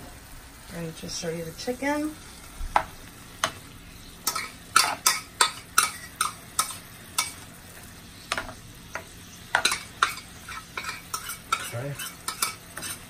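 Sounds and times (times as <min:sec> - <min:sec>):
chicken sizzling in a frying pan: 0:00.0 - 0:13.0
spatula tapping and scraping pan: 0:02.7 - 0:03.6, 0:04.2 - 0:07.4, 0:08.3 - 0:13.0.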